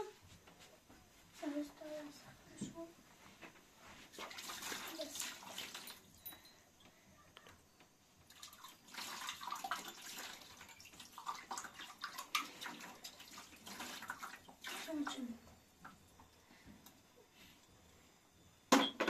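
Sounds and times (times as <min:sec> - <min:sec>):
water pouring into plastic basin: 0:04.1 - 0:06.1, 0:08.3 - 0:15.3.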